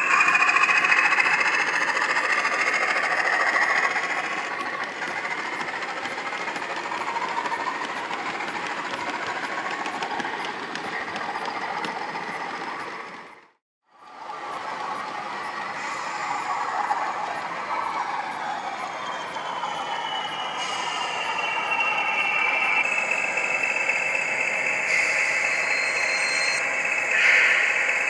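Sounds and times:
model wagon wheels rattling on track: 0:00.0 - 0:13.4.

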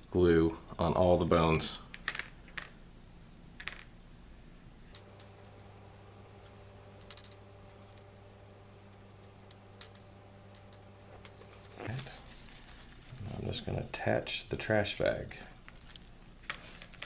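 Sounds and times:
low steady hum: 0:00.0 - 0:17.0
brush clicks and taps: 0:05.0 - 0:11.9.

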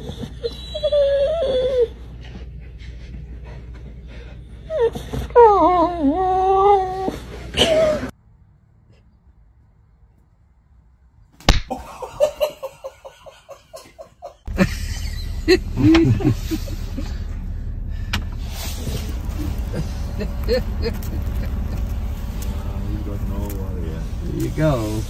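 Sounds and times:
sharp slap: 0:11.4 - 0:11.9
people laughing: 0:11.7 - 0:17.2, 0:19.0 - 0:23.8
vehicle cabin rumble: 0:14.5 - 0:25.0.

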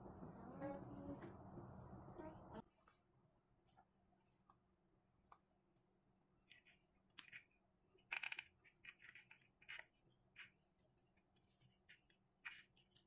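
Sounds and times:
cord scratching on rubber tubing: 0:08.2 - 0:13.0.

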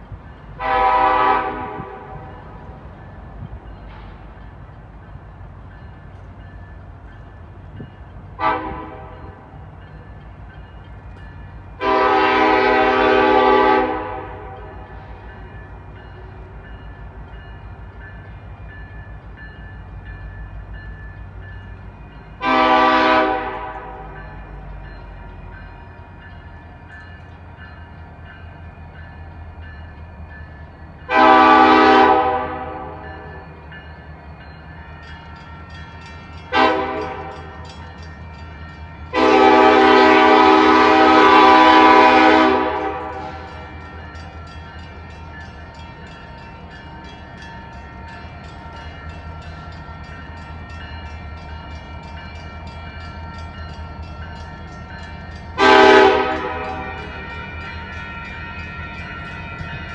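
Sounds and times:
train rumbling: 0:00.0 - 0:59.9
locomotive air horn blasts: 0:00.6 - 0:02.3, 0:08.4 - 0:09.5, 0:11.8 - 0:14.8, 0:22.4 - 0:24.2, 0:31.1 - 0:33.3, 0:36.5 - 0:37.5, 0:39.1 - 0:43.7, 0:55.6 - 0:57.5.

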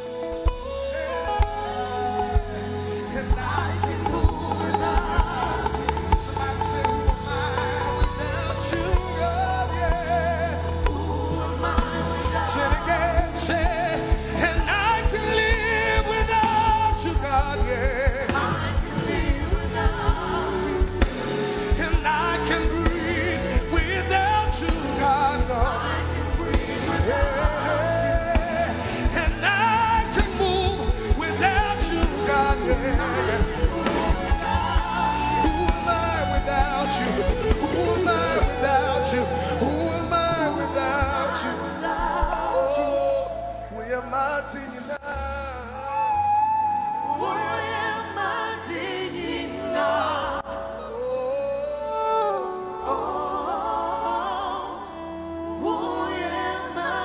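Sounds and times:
drums: 0:00.0 - 0:50.5
gospel band playing: 0:00.0 - 0:57.0
person singing: 0:00.0 - 0:57.0.

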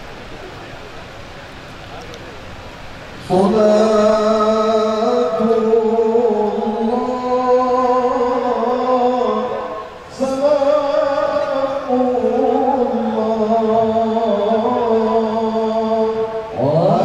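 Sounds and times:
men chanting: 0:03.2 - 0:17.0.

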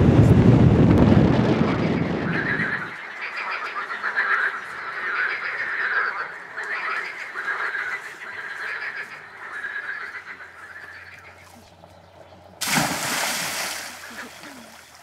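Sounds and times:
frogs croaking in chorus: 0:02.2 - 0:12.6, 0:13.6 - 0:15.0.

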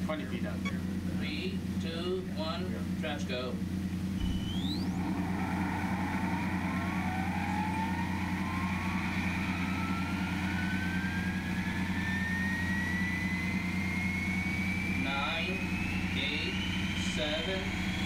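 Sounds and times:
low hum: 0:00.0 - 0:18.0
electric motor whine rising: 0:04.0 - 0:18.0.

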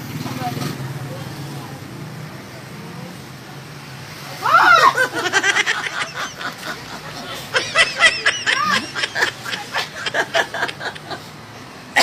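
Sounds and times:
girl laughing and giggling: 0:04.5 - 0:11.3.

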